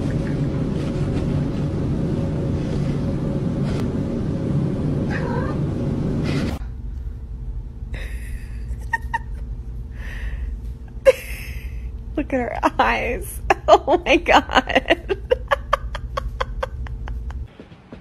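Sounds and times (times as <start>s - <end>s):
faint low hum: 0.0s - 17.5s
cat growling and yowling: 5.1s - 5.7s.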